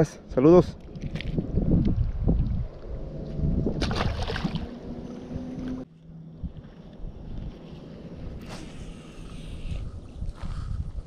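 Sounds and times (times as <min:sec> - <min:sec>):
wind buffeting microphone: 0:00.0 - 0:11.0
fish splashing into water: 0:03.8 - 0:04.7.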